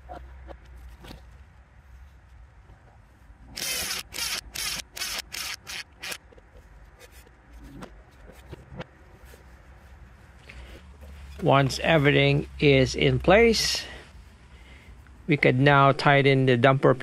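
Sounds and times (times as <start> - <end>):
cordless power tool bursts: 3.6 - 6.2.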